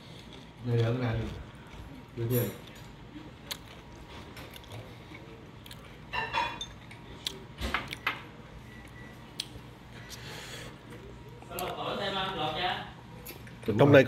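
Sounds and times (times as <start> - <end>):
chopsticks clinking on tableware: 6.1 - 7.0.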